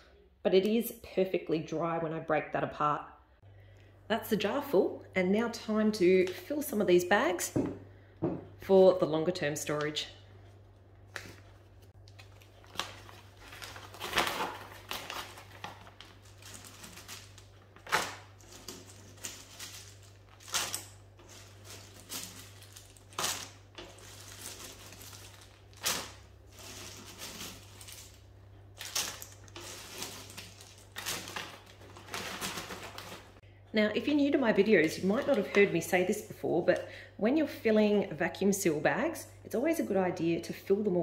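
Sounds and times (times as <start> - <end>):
dry chips crackling: 11.1 - 33.4
plastic bag crinkling: 11.2 - 33.4, 34.5 - 36.0.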